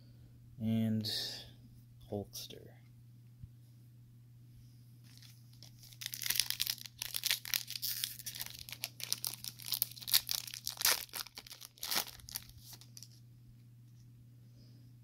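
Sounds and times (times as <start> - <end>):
foil wrapper tearing and crinkling: 5.1 - 13.2.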